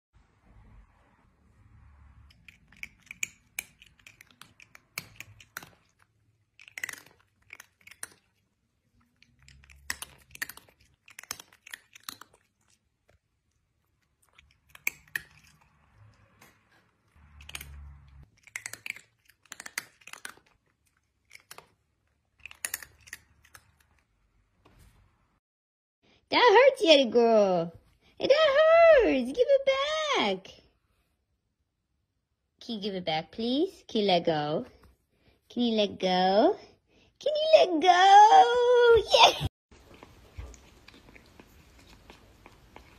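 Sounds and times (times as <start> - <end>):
cat chewing crunchily: 2.3 - 24.1, 39.7 - 42.9.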